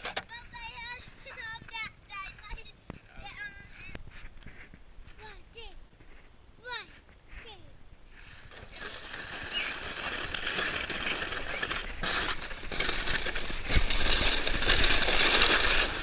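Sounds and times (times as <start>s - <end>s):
sled sliding on snow: 8.1s - 16.0s.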